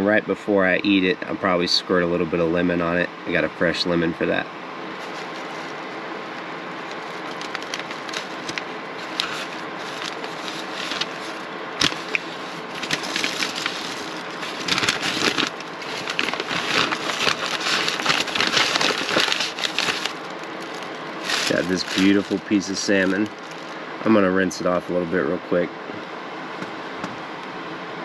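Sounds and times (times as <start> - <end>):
steady hiss: 0.8 - 25.7
food wrapping crinkling: 5.0 - 5.8, 6.9 - 23.8.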